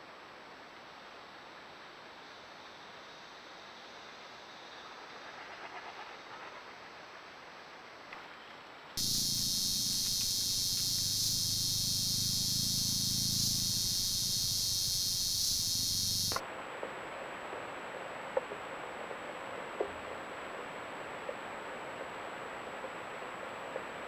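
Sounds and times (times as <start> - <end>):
forest hiss: 0.0 - 8.1, 9.0 - 24.0
jungle insects buzzing: 9.0 - 16.4
low hum: 9.0 - 16.4
faint clicks: 15.6 - 16.4.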